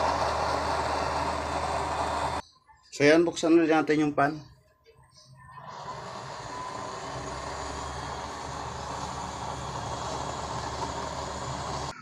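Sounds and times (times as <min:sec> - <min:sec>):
electric blower fan humming: 0:00.0 - 0:02.4, 0:05.6 - 0:12.0.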